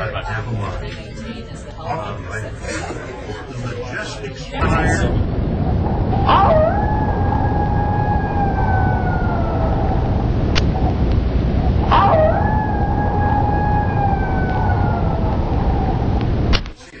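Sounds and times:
rumble inside moving aerial tram: 2.7s - 16.7s
whining tone falling in pitch: 4.6s - 16.6s.

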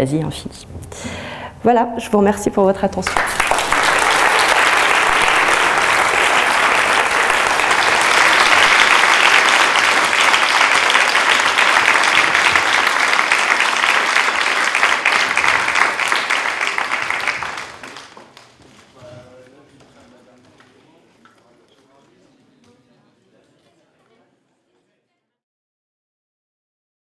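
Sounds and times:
audience applauding: 3.0s - 18.9s.

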